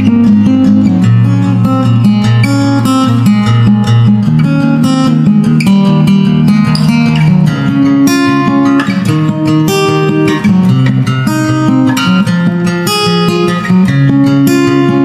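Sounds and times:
instrumental guitar music: 0.0s - 15.0s.

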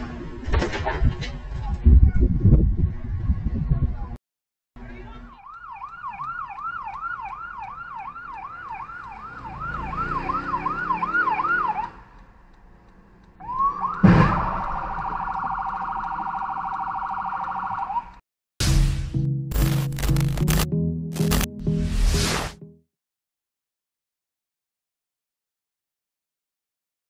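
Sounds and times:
fire truck siren: 5.3s - 12.2s, 13.4s - 18.2s
loud crash of vehicles: 14.0s - 14.9s.

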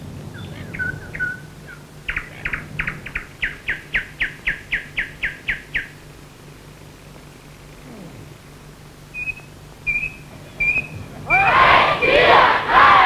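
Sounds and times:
bird chirping: 0.0s - 6.2s, 9.0s - 12.1s.

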